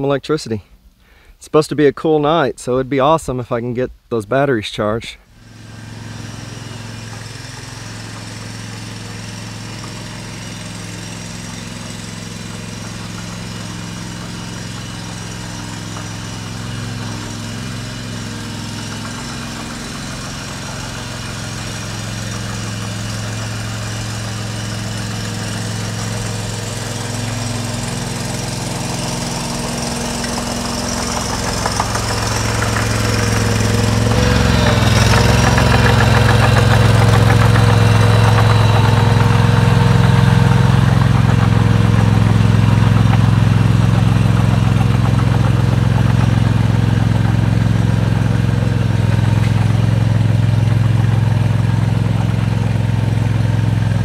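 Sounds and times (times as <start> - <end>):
small gasoline engine running: 5.3 - 54.0.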